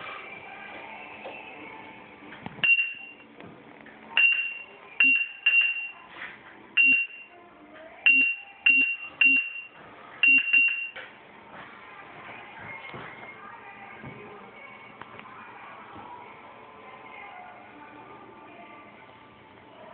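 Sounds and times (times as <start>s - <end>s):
short high beeps: 8.1s - 11.0s.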